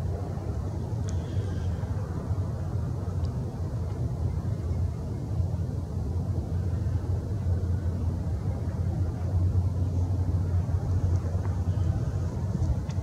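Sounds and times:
low outdoor rumble: 0.0 - 13.0
faint tick: 1.0 - 1.4, 3.2 - 4.0.

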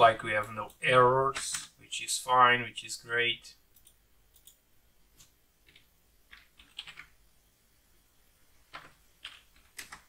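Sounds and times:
keyboard typing: 3.7 - 4.6, 5.2 - 7.2, 8.7 - 10.0.

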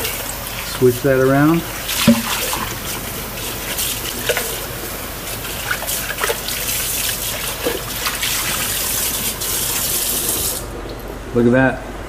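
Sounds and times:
faucet running into sink: 0.0 - 4.7
water splashing off bowl: 0.0 - 10.6
bowl knocking: 2.0 - 2.6.

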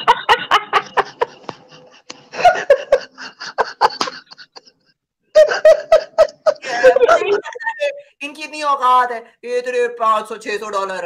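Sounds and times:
woman laughing: 0.0 - 8.0.

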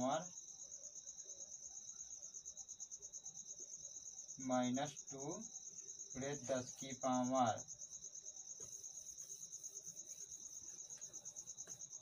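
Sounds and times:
faint steady whine: 0.0 - 12.0
insect trill: 0.0 - 12.0
man speaking: 6.2 - 7.6.

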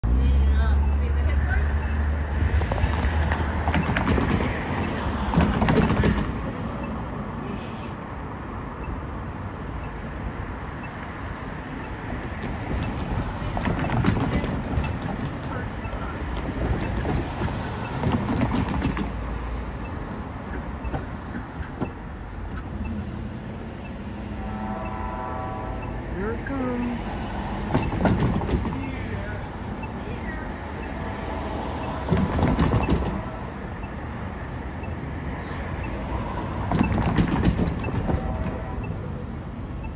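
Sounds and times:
cars driving past: 0.0 - 39.9.

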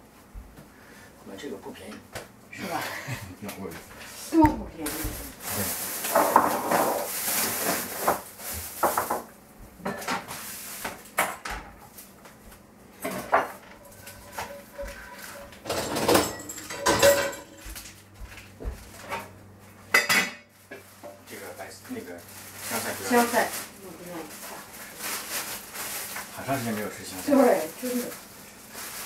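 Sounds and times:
pots and dishes clattering: 6.0 - 10.4, 13.0 - 17.8, 19.9 - 21.3.

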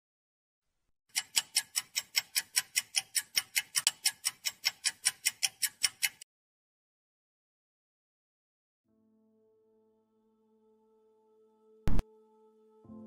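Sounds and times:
rapid clock-like ticking: 1.1 - 6.2.

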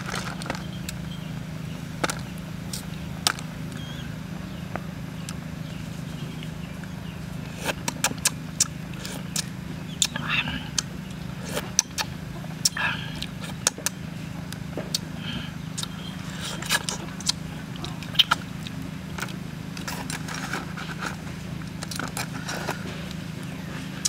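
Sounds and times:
low hum: 0.0 - 24.0
chewing and biting: 7.5 - 24.0.

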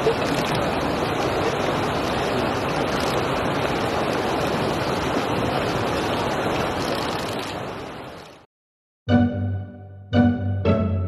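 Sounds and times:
flowing water: 0.0 - 8.5.

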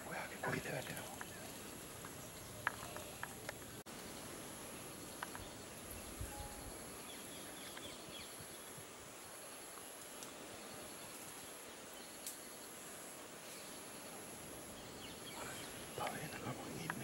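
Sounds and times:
high insect drone: 0.0 - 17.0
outdoor background hiss: 0.0 - 17.0
faint clicks: 0.8 - 3.8, 5.2 - 5.5, 12.2 - 12.4, 15.6 - 17.0.

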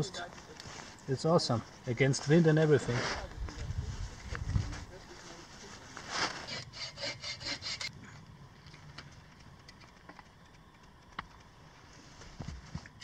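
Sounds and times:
rasping strokes: 6.0 - 8.0
faint clicks: 8.6 - 11.8.

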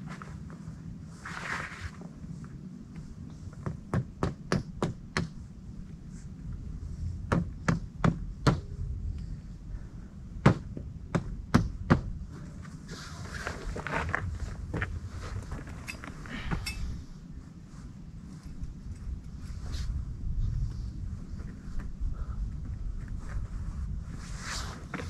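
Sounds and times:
low rumble: 5.3 - 25.0.

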